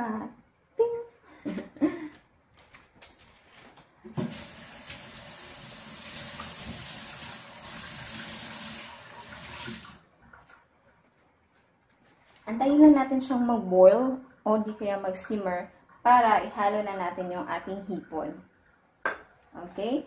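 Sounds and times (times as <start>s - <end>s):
water running from tap: 4.2s - 10.1s.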